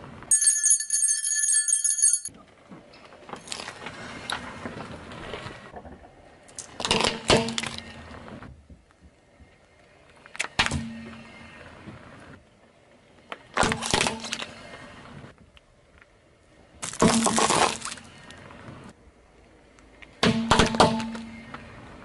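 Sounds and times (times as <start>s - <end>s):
jingle bell ringing: 0.3s - 2.3s.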